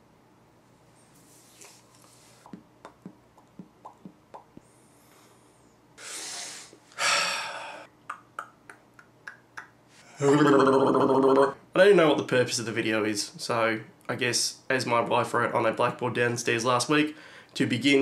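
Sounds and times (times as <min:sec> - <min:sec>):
soft mouth clicks: 0:01.6 - 0:04.7, 0:08.0 - 0:09.8
man breathing in: 0:04.7 - 0:07.9, 0:17.2 - 0:17.5.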